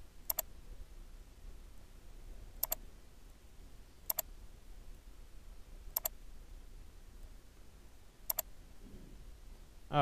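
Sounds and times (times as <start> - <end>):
computer mouse button clicking: 0.3 - 0.5, 2.6 - 2.8, 4.1 - 4.3, 6.0 - 6.2, 8.3 - 8.5.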